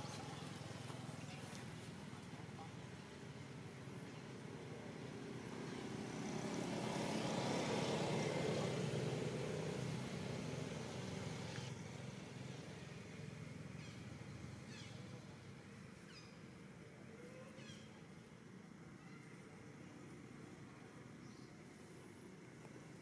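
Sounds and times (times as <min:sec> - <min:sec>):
vehicle passing by: 0:04.4 - 0:15.0.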